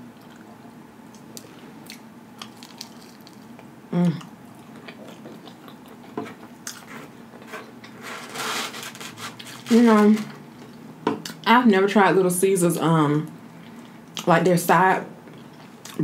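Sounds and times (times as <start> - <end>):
person chewing food: 1.1 - 8.0.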